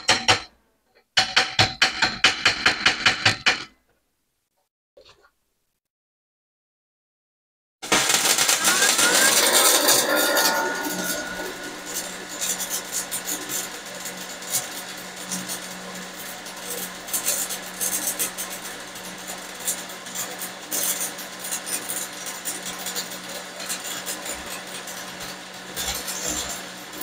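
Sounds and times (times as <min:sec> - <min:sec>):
welding arc crackling and popping: 0:07.8 - 0:27.0
steady low hum: 0:08.3 - 0:20.1.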